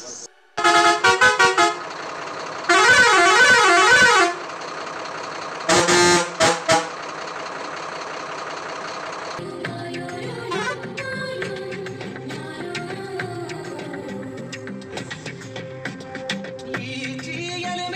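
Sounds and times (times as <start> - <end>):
truck air horn: 0.6 - 2.0, 2.7 - 4.5, 5.6 - 7.1, 10.5 - 10.8.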